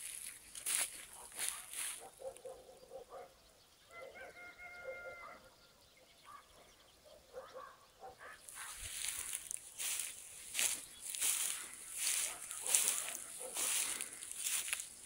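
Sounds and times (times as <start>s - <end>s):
rooster crowing: 3.9s - 5.5s
distant fowl calls: 3.9s - 5.6s, 7.3s - 14.8s.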